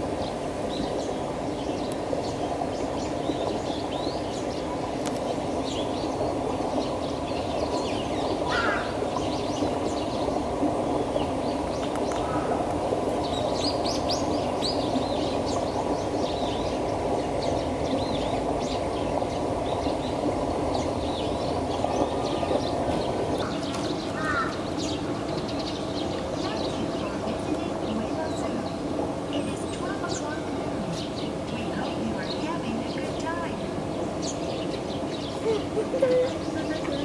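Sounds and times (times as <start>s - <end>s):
small birds chirping: 0.2s - 37.0s
crow cawing: 8.5s - 8.9s, 24.2s - 24.6s.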